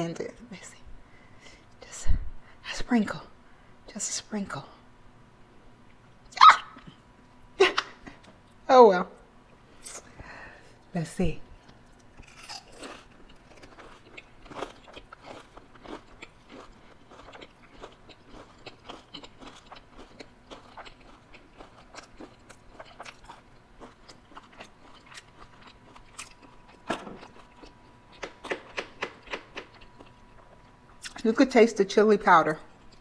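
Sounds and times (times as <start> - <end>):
crunchy food chewing: 11.6 - 31.2.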